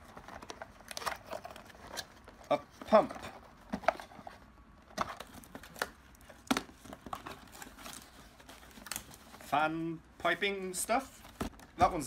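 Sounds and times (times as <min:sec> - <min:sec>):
cardboard box rustling: 0:00.0 - 0:09.6.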